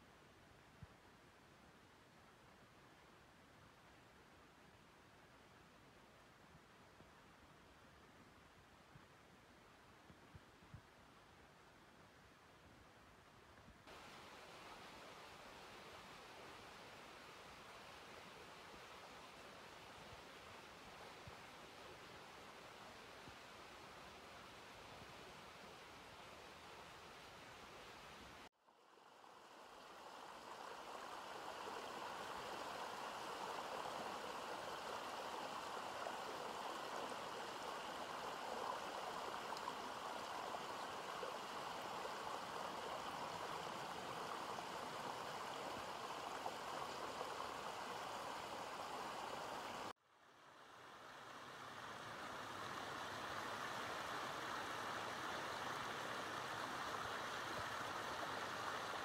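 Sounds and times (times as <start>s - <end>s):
stream running over rocks: 13.9s - 59.0s.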